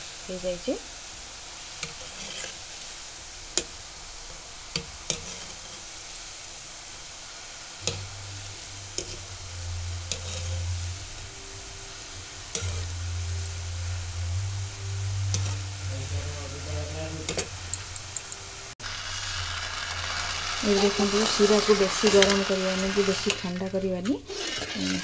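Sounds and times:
dough deep-frying in oil: 0.0 - 25.0
low hum: 7.6 - 24.3.

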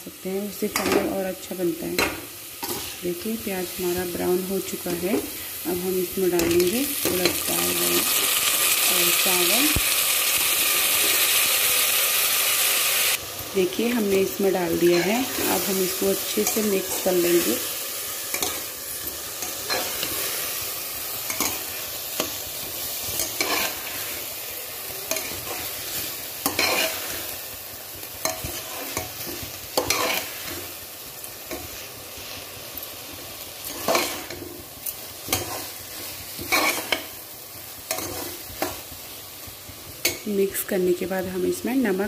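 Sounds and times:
sizzling in hot ghee: 0.0 - 42.0
metal spatula scraping pot: 23.1 - 24.2, 26.5 - 27.2.

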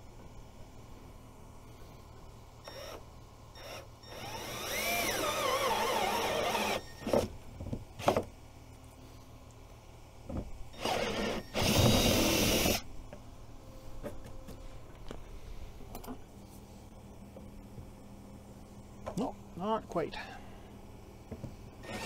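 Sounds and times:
cordless drill boring plastic: 3.6 - 7.3, 10.8 - 12.8.

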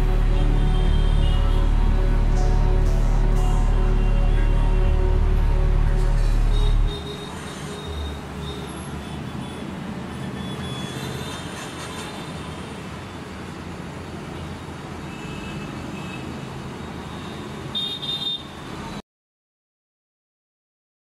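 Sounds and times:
brief high-pitched sound: 0.0 - 8.7
road traffic noise: 0.0 - 19.0.

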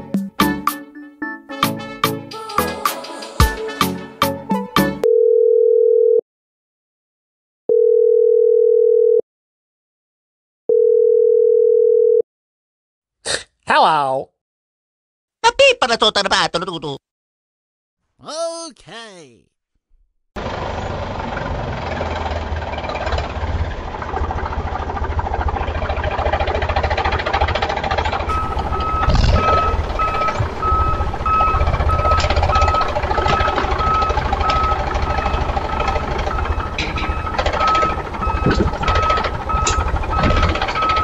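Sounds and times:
engine running with fast knocking: 20.4 - 41.0
reversing beeper: 28.3 - 41.0.

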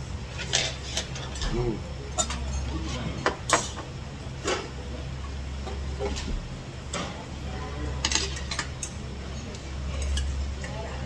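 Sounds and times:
low steady hum: 0.0 - 11.0
metal utensils clinking on steel bowl: 2.1 - 2.7, 8.0 - 10.7.

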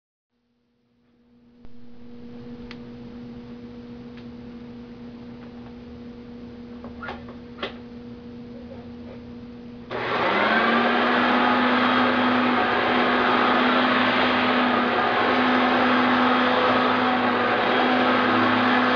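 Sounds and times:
faint steady hum: 0.4 - 9.9
upright vacuum cleaner running: 9.9 - 18.9.

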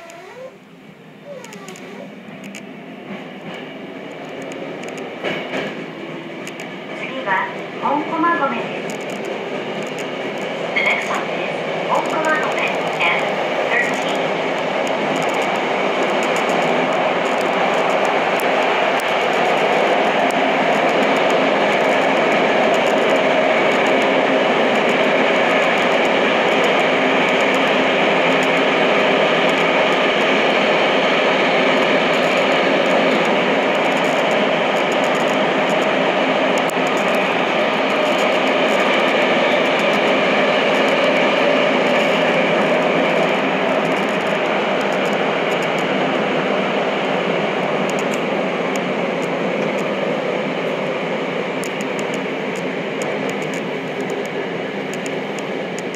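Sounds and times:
train wheels rumbling on rail: 0.0 - 55.9.

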